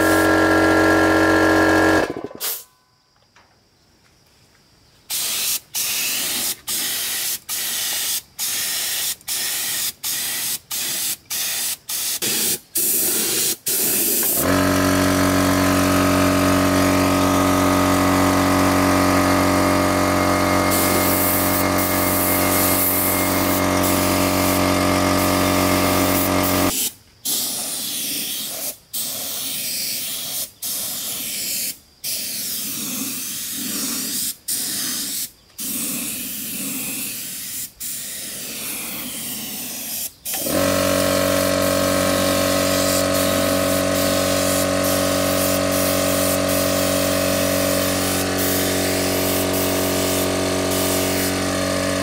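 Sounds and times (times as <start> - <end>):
air compressor humming: 0.0 - 2.6, 12.0 - 26.9, 39.2 - 52.0
spray gun hissing in bursts: 0.0 - 2.6, 5.1 - 52.0.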